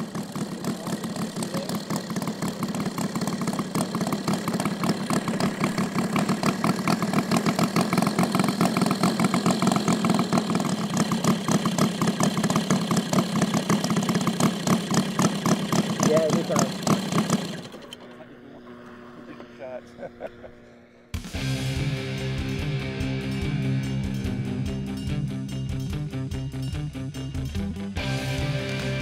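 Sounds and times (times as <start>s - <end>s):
model plane engine idling: 0.0s - 21.6s.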